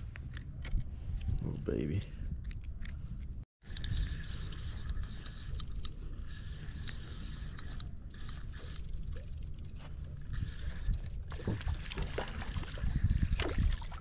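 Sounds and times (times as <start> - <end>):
wind rumbling on microphone: 0.0 - 8.6, 9.6 - 14.0
handling clicks and scrapes: 2.4 - 14.0.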